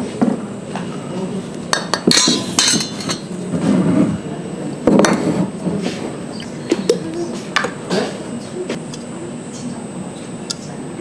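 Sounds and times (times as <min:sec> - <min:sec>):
dishes and utensils clinking: 0:01.7 - 0:03.3.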